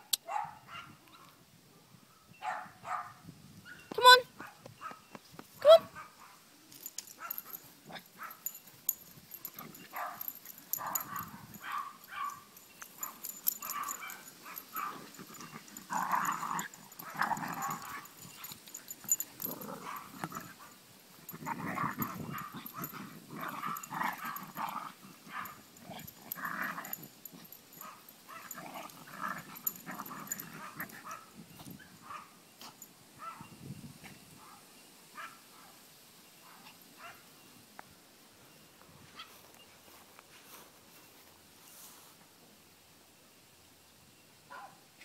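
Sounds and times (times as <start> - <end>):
small dogs growling and yipping: 13.0 - 31.8.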